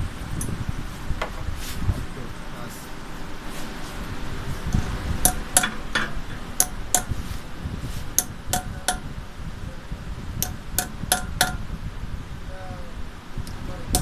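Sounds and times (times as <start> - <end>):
hammer tapping metal: 5.2 - 7.2, 8.2 - 9.1, 10.4 - 11.7.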